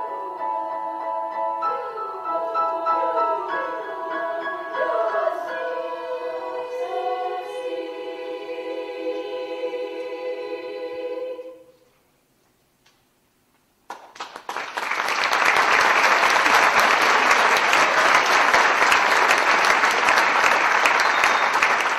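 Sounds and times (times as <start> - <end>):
girls' choir holding a chord: 0.0 - 11.8
audience applause: 13.9 - 21.9.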